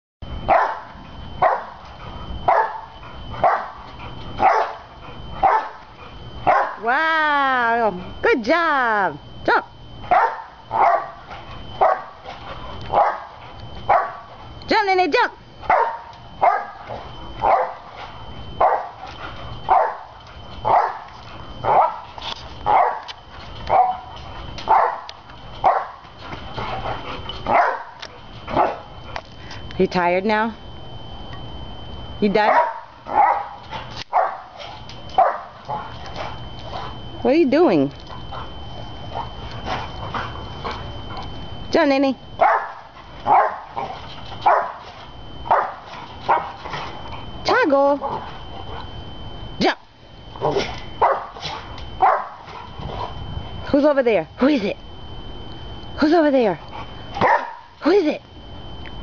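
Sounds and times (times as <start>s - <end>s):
dog barking: 0.5s - 1.8s, 2.5s - 3.8s, 4.4s - 5.8s, 6.5s - 6.8s, 10.1s - 11.2s, 11.8s - 12.2s, 12.9s - 14.3s, 15.7s - 16.8s, 17.4s - 17.9s, 18.6s - 19.0s, 19.7s - 20.1s, 20.7s - 21.1s, 21.7s - 22.1s, 22.7s - 23.1s, 23.7s - 24.1s, 24.7s - 26.0s, 27.5s - 28.9s, 32.5s - 35.6s, 42.4s - 44.8s, 45.5s - 46.6s, 50.5s - 52.4s, 57.2s - 57.7s.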